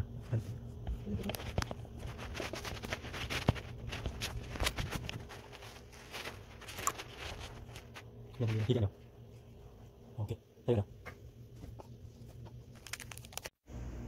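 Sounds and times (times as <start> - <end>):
steady low hum: 0.0 - 14.0
clicks taps and rustling: 0.8 - 8.1.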